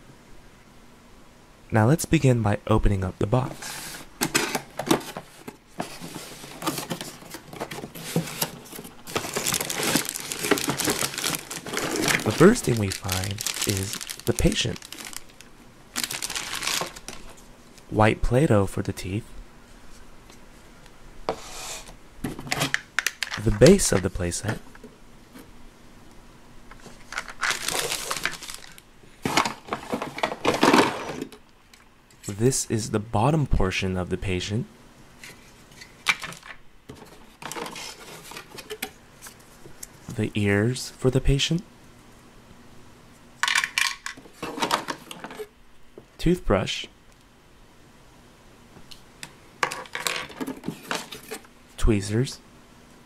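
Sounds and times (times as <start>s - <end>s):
rummaging inside cardboard box: 3.6s - 15.4s, 16.0s - 17.4s, 26.9s - 31.4s, 37.0s - 38.9s
packaging rustling and crinkling: 3.7s - 17.5s, 26.7s - 31.4s, 35.2s - 39.6s, 43.4s - 45.5s.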